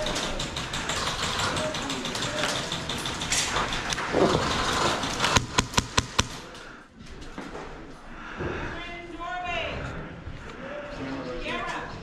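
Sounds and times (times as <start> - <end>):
airsoft gun firing clicks: 5.3 - 6.4.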